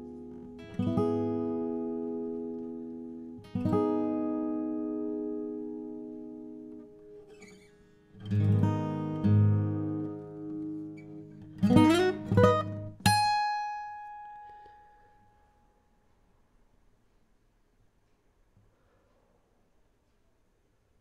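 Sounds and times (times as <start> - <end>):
acoustic guitar playing: 0.0 - 16.1.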